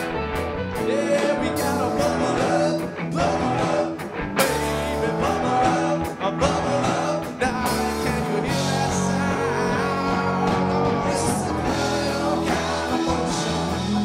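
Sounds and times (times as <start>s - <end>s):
bass guitar: 0.0s - 14.0s
electric guitars: 0.0s - 14.0s
keyboards: 0.0s - 14.0s
drum beat: 6.9s - 14.0s.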